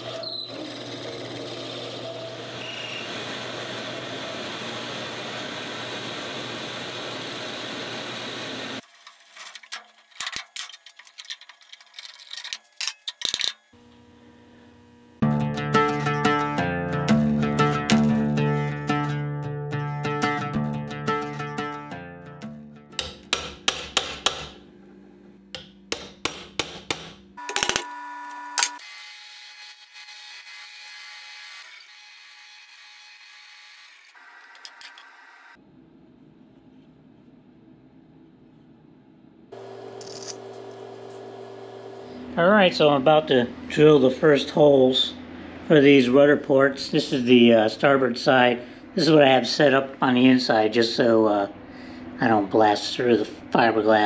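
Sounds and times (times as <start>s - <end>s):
drill press cutting wood: 0.0s - 8.8s, 39.6s - 42.3s
hammer tapping metal punch: 22.9s - 24.6s, 25.5s - 27.8s.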